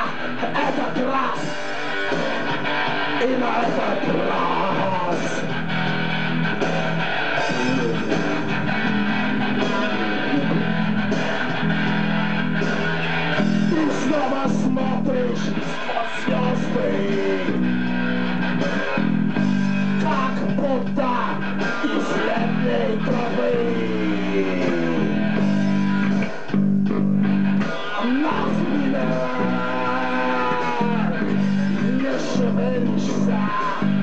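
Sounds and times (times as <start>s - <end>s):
person singing: 0.0s - 1.8s, 3.1s - 5.6s, 7.3s - 11.0s, 13.6s - 17.7s, 19.9s - 25.4s, 27.7s - 34.0s
rock music with guitars: 0.0s - 34.0s.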